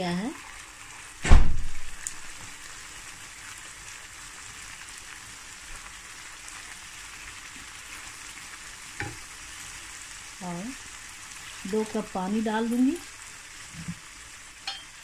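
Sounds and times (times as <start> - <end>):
lentils sizzling in frying pan: 0.0 - 15.0
short knock: 1.2 - 1.8.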